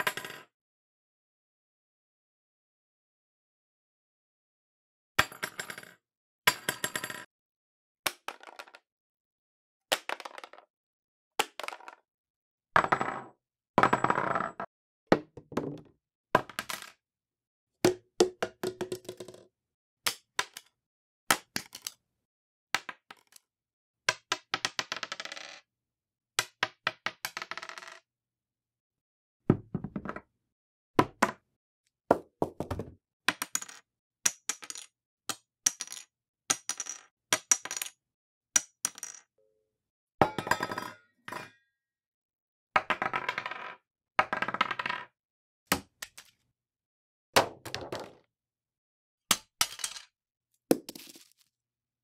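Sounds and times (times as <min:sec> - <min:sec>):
small objects dropped on wood: 0:32.6 - 0:34.9, 0:35.7 - 0:38.0, 0:38.6 - 0:39.2, 0:47.6 - 0:48.2, 0:49.6 - 0:50.1, 0:50.7 - 0:51.5.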